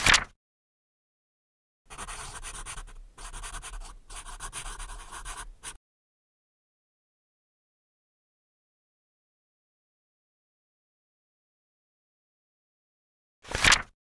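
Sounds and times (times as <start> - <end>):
paper page rustling: 0.0 - 0.3, 13.5 - 13.9
pen scratching on paper: 1.9 - 5.8.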